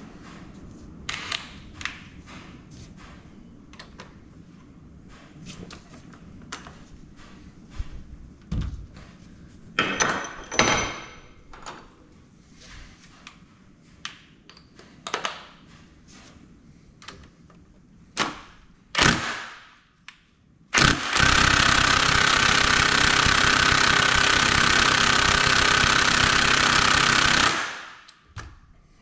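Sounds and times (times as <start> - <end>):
impact wrench hammering: 20.8 - 28.2.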